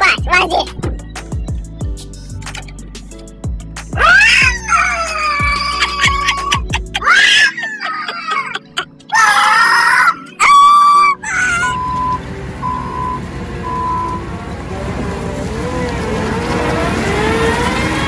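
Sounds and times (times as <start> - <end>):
music: 0.0 - 14.1
people yelling: 4.0 - 7.9, 9.1 - 11.9
diesel engine rumbling: 10.1 - 18.0
backup alarm beeps: 11.6 - 14.3.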